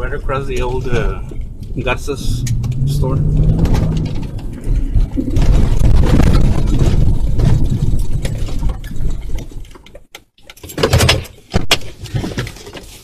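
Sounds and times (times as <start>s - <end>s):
car driving over rough grass: 0.5s - 9.6s
sharp knocks and clatters: 2.4s - 13.0s.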